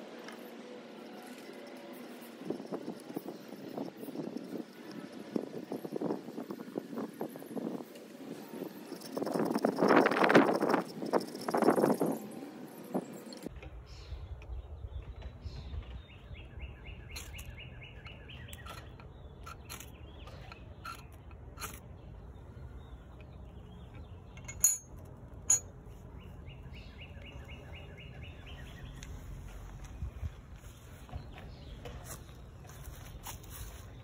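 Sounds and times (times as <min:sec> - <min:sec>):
bird trill: 0:16.1 - 0:21.8.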